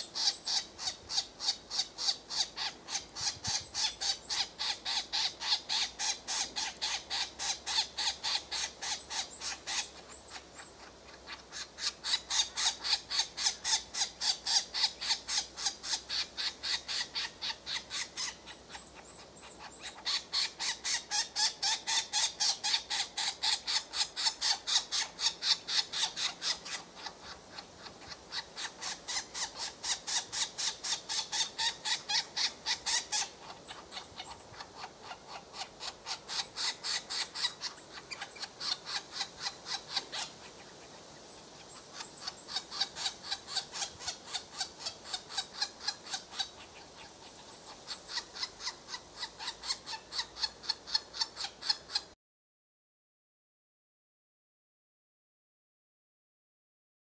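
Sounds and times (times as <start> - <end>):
woodpecker nestlings begging calls: 0.0 - 52.2.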